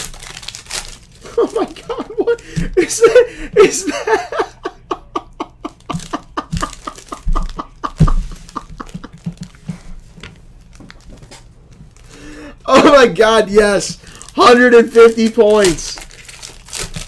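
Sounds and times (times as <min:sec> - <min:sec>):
man laughing: 0:01.2 - 0:09.8, 0:12.6 - 0:13.4.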